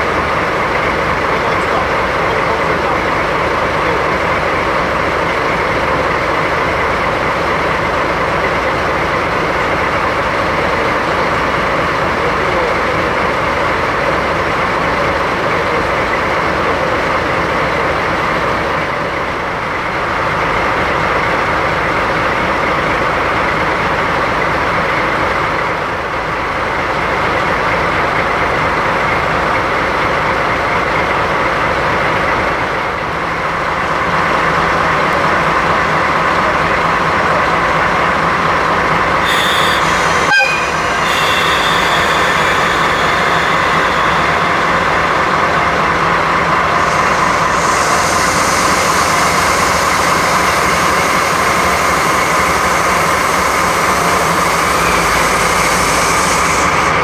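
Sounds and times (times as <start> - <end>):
diesel locomotive engines idling: 0.0 - 57.0
high hiss: 39.3 - 57.0.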